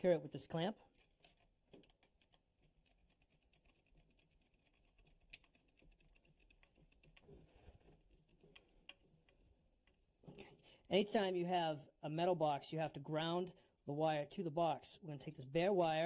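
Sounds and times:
screwdriver clicking and scraping: 0:00.9 - 0:10.0.

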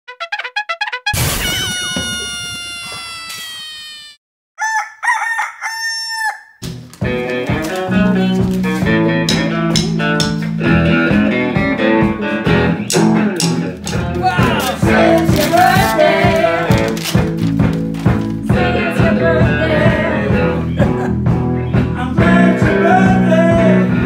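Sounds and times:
rooster crowing: 0:04.6 - 0:06.6
band with guitar and drums: 0:06.7 - 0:24.0.

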